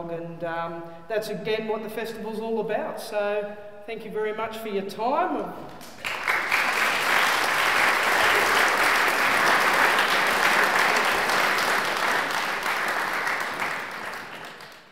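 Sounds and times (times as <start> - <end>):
audience applause: 5.9 - 14.9.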